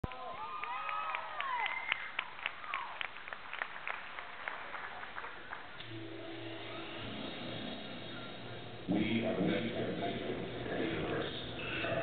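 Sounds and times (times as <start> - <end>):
audience clapping: 0.0 - 5.8.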